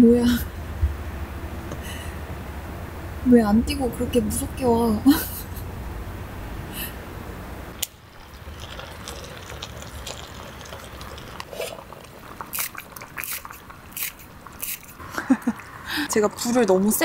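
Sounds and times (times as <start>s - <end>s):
stew simmering with soft hiss: 7.8s - 17.0s.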